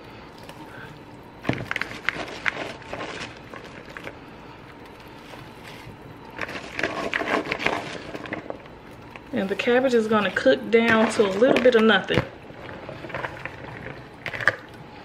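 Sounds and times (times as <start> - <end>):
cabbage rustling into a pot: 1.6 - 4.1, 5.2 - 8.6.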